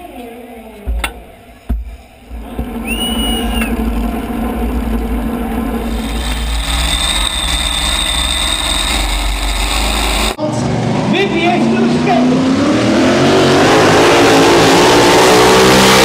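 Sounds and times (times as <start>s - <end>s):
tractor engine idling: 0.9s - 10.4s
high whine: 1.5s - 15.4s.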